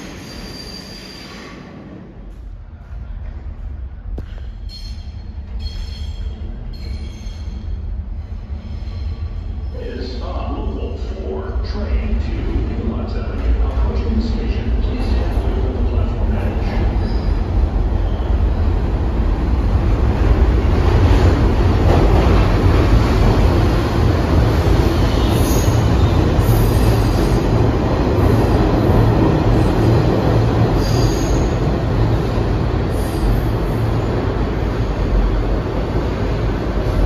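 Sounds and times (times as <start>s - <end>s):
train wheels rumbling on rail: 0.0s - 37.0s.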